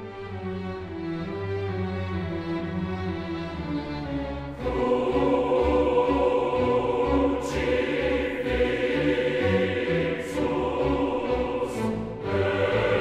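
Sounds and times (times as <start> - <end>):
choir singing sustained chords: 3.5 - 13.0.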